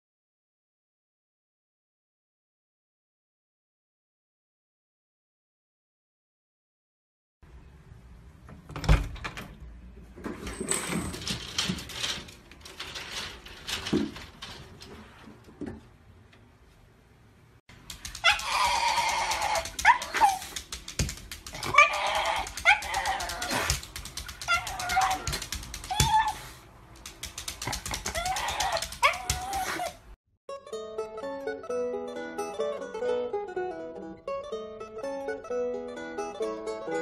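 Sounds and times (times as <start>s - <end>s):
rattling and clicking: 10.2s - 15.4s, 17.7s - 26.2s, 26.9s - 29.6s
dog whining howls: 18.2s - 20.6s, 21.6s - 23.8s, 24.4s - 26.6s, 28.0s - 30.0s.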